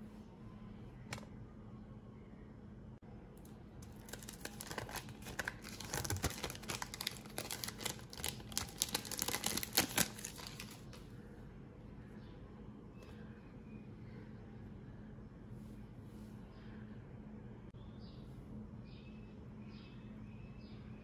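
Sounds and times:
plastic film crinkling: 3.8 - 11.0.

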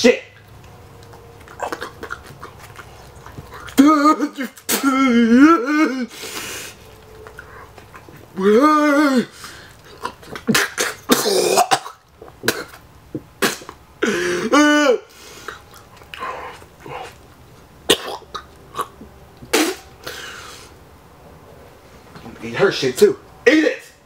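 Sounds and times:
man coughing and gagging: 3.8 - 6.1, 10.0 - 15.1, 17.9 - 18.5
man groaning: 3.8 - 6.2, 8.4 - 9.4.

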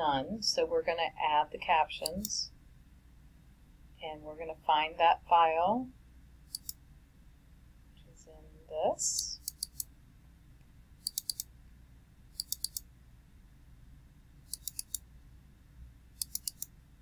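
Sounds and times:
computer mouse double-clicking: 6.5 - 6.8, 9.4 - 9.9, 11.0 - 11.5, 12.3 - 12.9, 14.5 - 15.0, 16.2 - 16.8.

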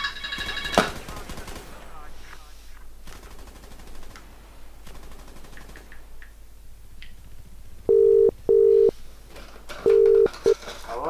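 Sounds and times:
faint clicks: 5.4 - 6.4
telephone double-ring tone: 7.9 - 8.9, 9.8 - 10.6.

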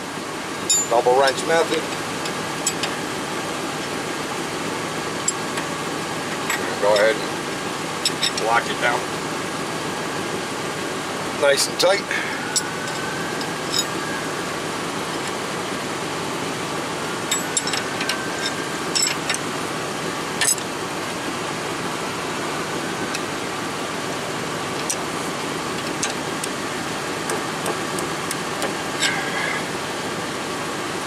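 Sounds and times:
steady mechanical drone: 0.0 - 31.0
hand tools clinking on metal: 0.6 - 1.1, 6.5 - 7.2, 8.0 - 8.6, 12.5 - 14.0, 17.3 - 19.4, 20.4 - 20.6.

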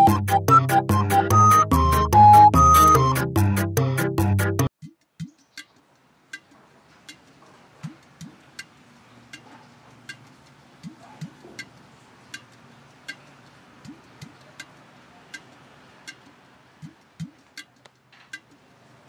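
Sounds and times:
steady ticking: 4.7 - 19.0.

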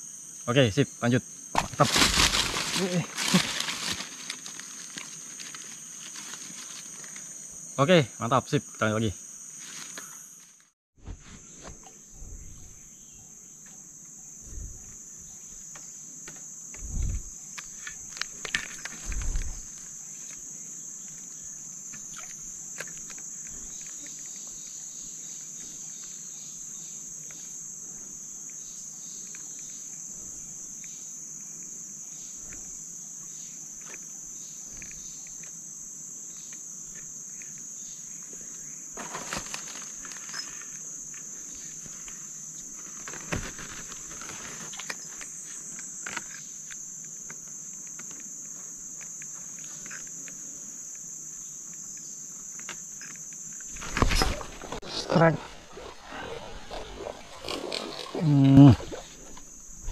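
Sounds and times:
insects buzzing: 0.0 - 59.9
rustling: 1.6 - 7.4, 9.5 - 12.9, 39.0 - 46.4.

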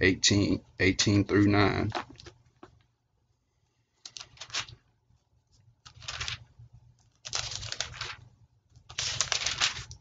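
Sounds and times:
paper pages turning: 4.0 - 4.9, 5.8 - 10.0.

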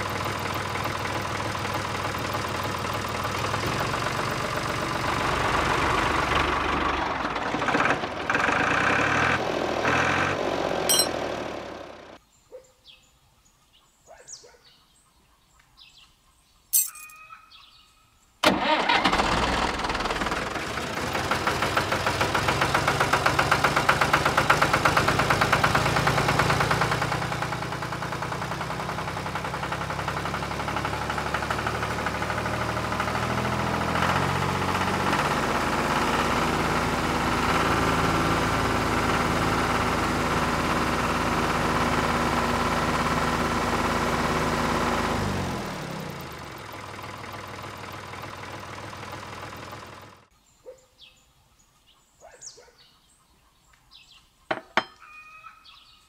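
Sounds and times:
small tractor motor running with rattling knock: 0.0 - 12.2, 19.2 - 50.3.

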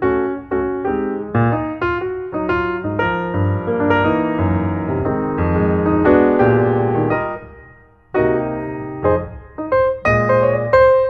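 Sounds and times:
piano notes and chords: 0.0 - 11.0.

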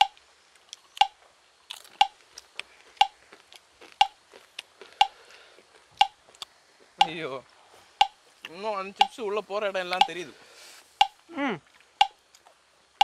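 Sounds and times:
clock ticking: 0.0 - 0.2, 1.0 - 1.2, 2.0 - 2.2, 4.0 - 4.2, 6.0 - 6.2, 7.0 - 7.2, 8.9 - 9.2, 9.9 - 10.2, 11.0 - 11.2, 12.0 - 12.2.

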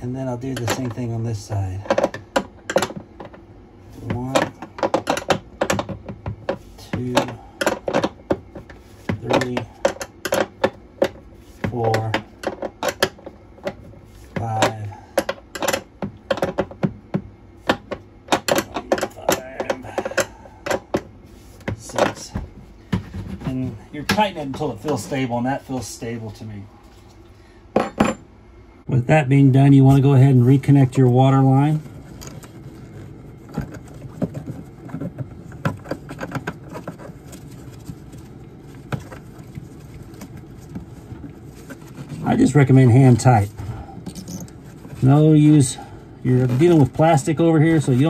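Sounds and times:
low background hum: 0.0 - 48.0.

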